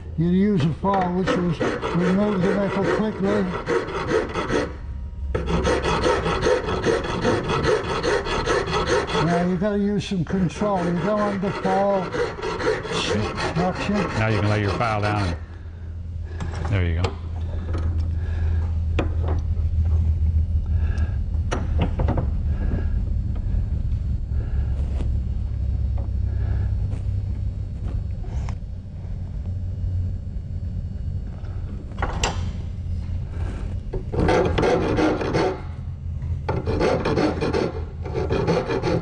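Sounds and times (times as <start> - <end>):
hand file rasping on steel: 0.5 - 4.8, 5.4 - 15.4, 34.2 - 35.7, 36.5 - 39.0.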